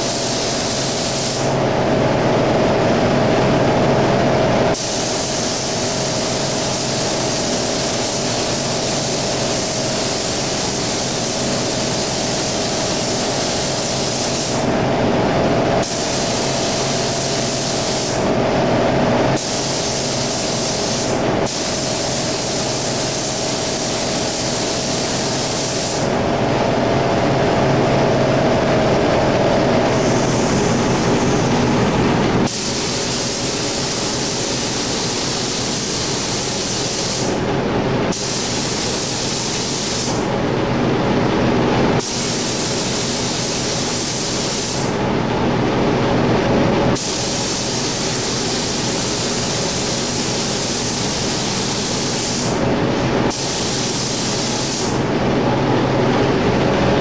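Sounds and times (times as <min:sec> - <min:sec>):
paint spray gun hissing: 0:00.0 - 0:01.6, 0:04.7 - 0:14.8, 0:15.8 - 0:18.4, 0:19.4 - 0:26.2, 0:29.9 - 0:37.4, 0:38.1 - 0:40.3, 0:42.0 - 0:45.0, 0:47.0 - 0:52.6, 0:53.3 - 0:55.1
steady machine hum: 0:00.0 - 0:57.0.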